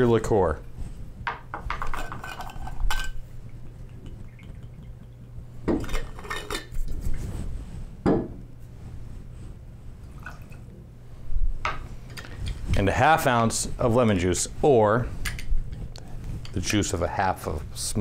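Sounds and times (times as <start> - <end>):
liquid pouring: 2.0 - 6.8, 10.2 - 10.7.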